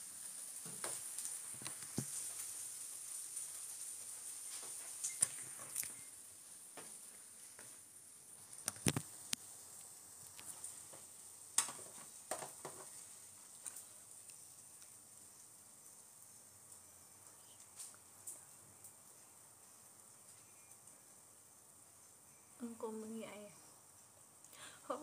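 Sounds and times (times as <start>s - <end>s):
faint hiss: 0.0s - 25.0s.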